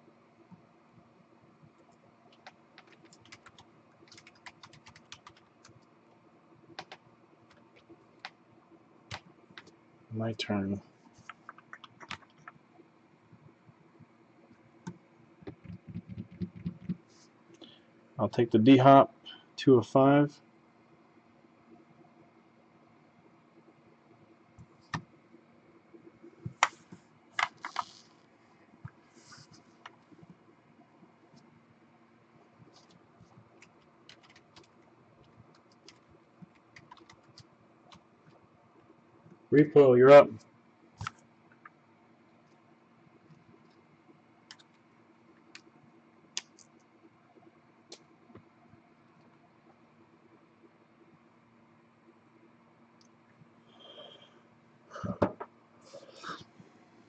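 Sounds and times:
low room hum: 0:00.0 - 0:57.0
typing on computer keyboard: 0:02.3 - 0:05.9, 0:06.8 - 0:08.4, 0:11.2 - 0:12.6, 0:14.8 - 0:17.0, 0:27.4 - 0:28.0, 0:33.6 - 0:38.0, 0:44.5 - 0:44.8.

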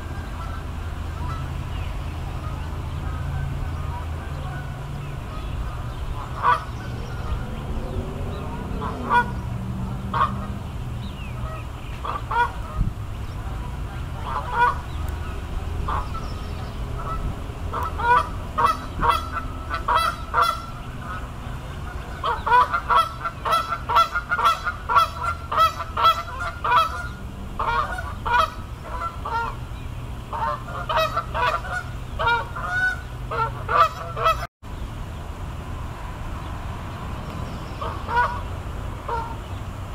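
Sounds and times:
geese honking: 0:00.0 - 0:01.6, 0:02.3 - 0:10.6, 0:11.3 - 0:29.6, 0:30.3 - 0:34.5, 0:37.8 - 0:39.4
low rumble: 0:02.8 - 0:11.5.

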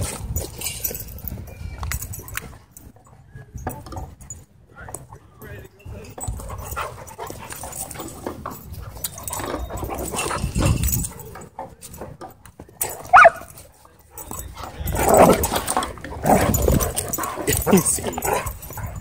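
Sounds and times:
dogs scuffling: 0:06.2 - 0:19.0
dog yelping: 0:13.1 - 0:13.4
dogs growling: 0:14.5 - 0:19.0.

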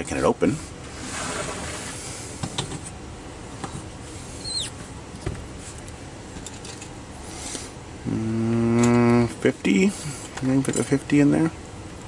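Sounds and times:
brief high squeak: 0:04.4 - 0:04.8.

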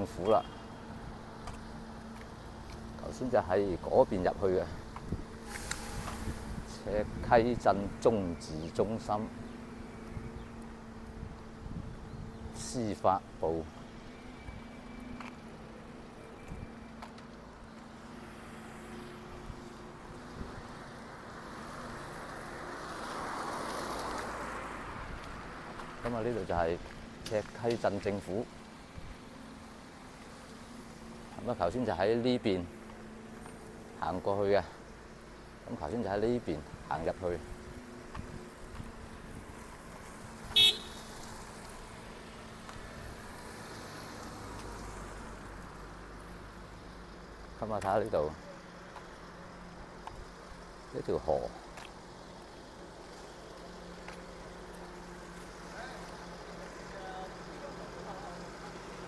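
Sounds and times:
vehicle horn toot: 0:00.2 - 0:00.8, 0:40.5 - 0:41.1
car passing by: 0:05.4 - 0:10.0, 0:18.0 - 0:28.4, 0:35.7 - 0:46.3.

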